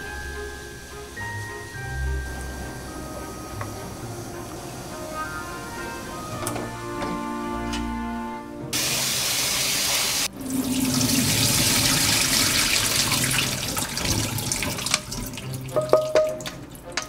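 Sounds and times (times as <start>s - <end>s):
tap water splashing into sink: 10.5s - 17.0s.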